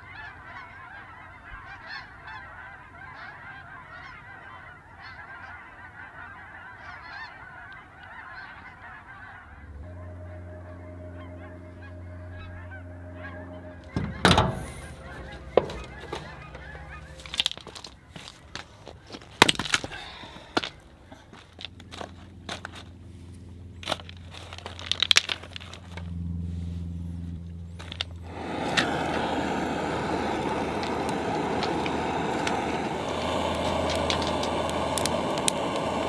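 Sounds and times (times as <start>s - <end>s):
geese honking: 0.0s - 19.2s, 27.9s - 36.0s
steady low hum: 9.2s - 36.0s.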